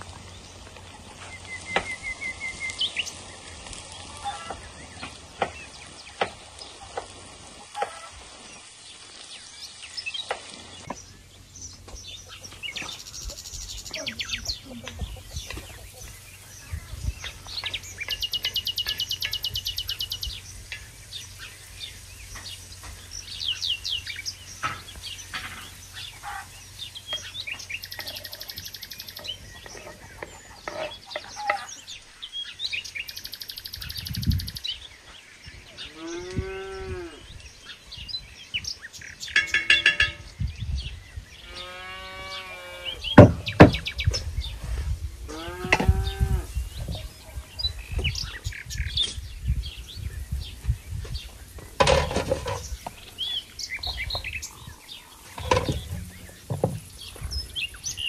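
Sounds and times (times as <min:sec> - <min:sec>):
songbirds chirping: 0:00.0 - 0:58.0
spatula scraping pan: 0:29.3 - 0:31.7.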